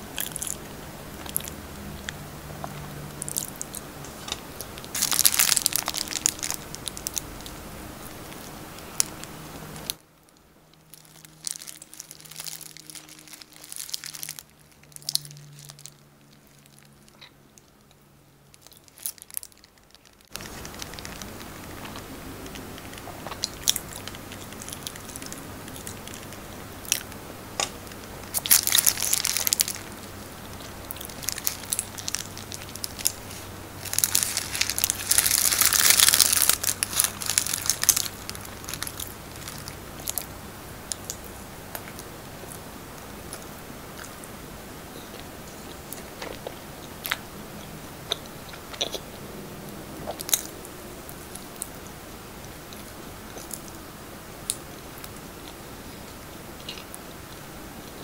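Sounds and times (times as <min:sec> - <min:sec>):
paper wrapper crinkling: 0:04.6 - 0:09.2, 0:10.8 - 0:17.0, 0:18.6 - 0:27.1, 0:27.9 - 0:40.3
chewing and mouth clicks: 0:18.6 - 0:27.7, 0:45.1 - 0:49.1.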